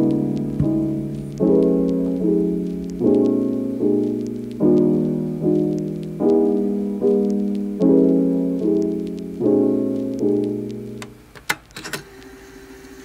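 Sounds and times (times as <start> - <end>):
sharp clicks: 0.0 - 3.4, 7.1 - 7.7, 9.9 - 12.3
soft piano chords: 0.0 - 11.3.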